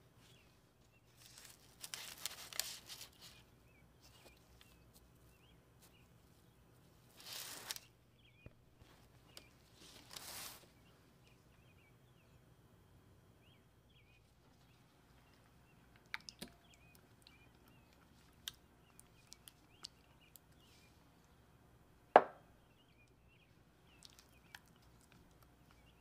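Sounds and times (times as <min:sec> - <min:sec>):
cloth rustle: 0:07.1 - 0:07.9, 0:08.8 - 0:10.8
faint bird chirps: 0:13.4 - 0:21.6, 0:22.4 - 0:26.0.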